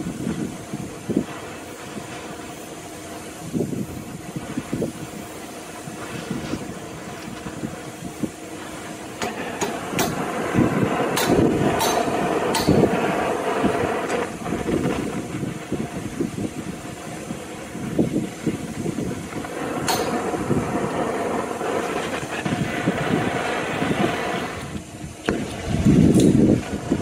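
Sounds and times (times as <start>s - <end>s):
gas torch flame hissing: 0.0s - 27.0s
sharp pops: 9.0s - 15.5s, 19.2s - 23.8s.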